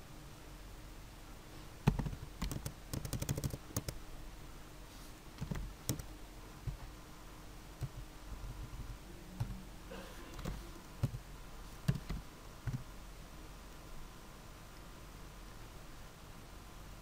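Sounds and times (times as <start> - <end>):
keyboard and mouse clicks: 1.8 - 4.0, 5.4 - 6.8, 7.8 - 8.0, 10.3 - 11.2, 11.9 - 12.8.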